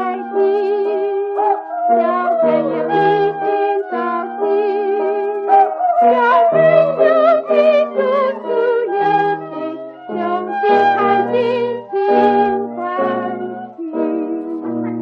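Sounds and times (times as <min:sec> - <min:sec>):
woman singing with vibrato: 0:00.0 - 0:14.7
simple instrumental accompaniment: 0:00.0 - 0:15.0.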